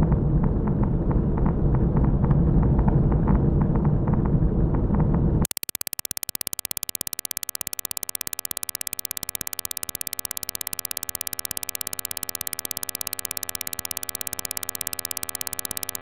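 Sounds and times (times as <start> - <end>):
rapid electronic clicks: 5.4 - 16.0.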